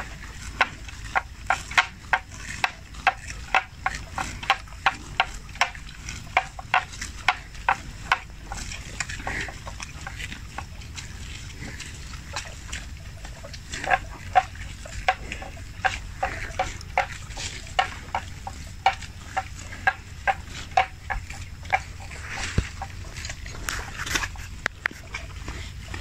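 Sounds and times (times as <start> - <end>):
buffalo chewing grass: 0.0 - 26.0.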